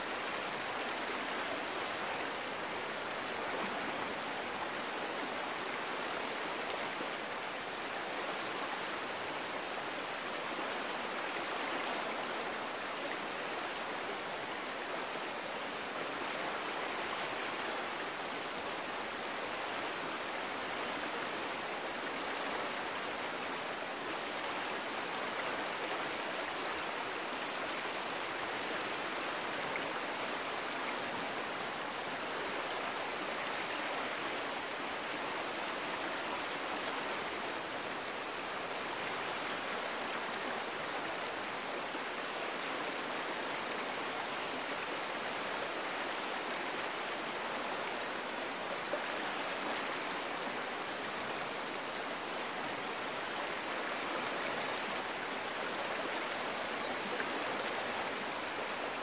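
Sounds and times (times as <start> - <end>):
creek flowing: 0.0 - 59.0.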